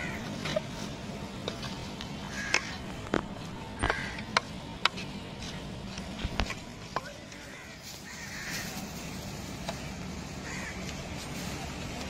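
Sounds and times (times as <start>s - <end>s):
crow cawing: 0.0s - 0.3s, 2.3s - 2.8s, 3.8s - 4.3s, 7.3s - 8.9s, 10.4s - 10.9s.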